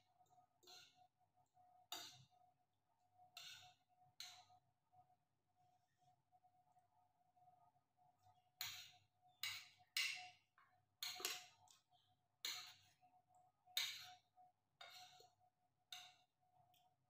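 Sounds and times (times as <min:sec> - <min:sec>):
cutlery clinking on ceramic plate: 0:11.0 - 0:11.5.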